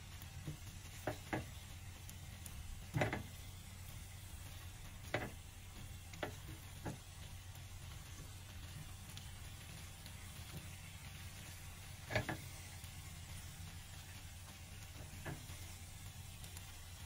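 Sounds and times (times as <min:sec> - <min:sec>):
spatula scraping frying pan: 0:12.0 - 0:12.6.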